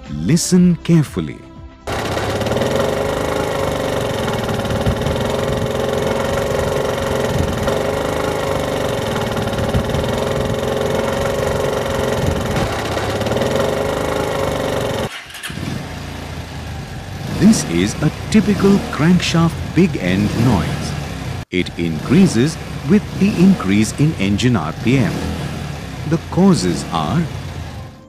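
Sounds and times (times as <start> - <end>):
motorcycle engine knocking: 1.9 - 15.1.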